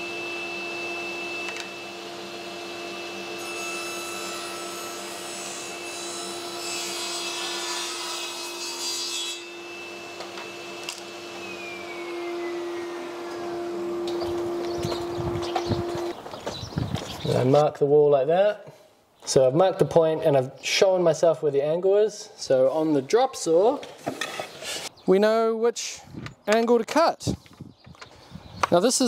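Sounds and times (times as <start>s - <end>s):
saw blade whine spinning down: 0.0s - 3.6s, 9.5s - 16.2s
table saw cutting wood: 0.0s - 16.2s.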